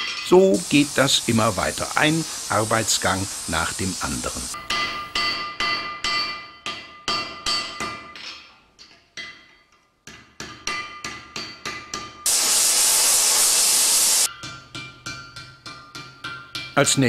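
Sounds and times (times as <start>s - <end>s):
torch flame hissing: 0.2s - 4.6s, 12.3s - 14.3s
hammer ringing on an anvil: 4.6s - 8.2s.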